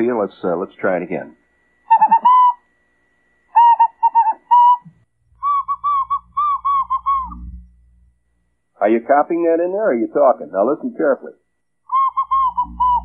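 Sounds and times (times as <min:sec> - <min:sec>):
person whistling morse code: 0:01.9 - 0:02.6, 0:03.5 - 0:07.6, 0:11.9 - 0:13.0.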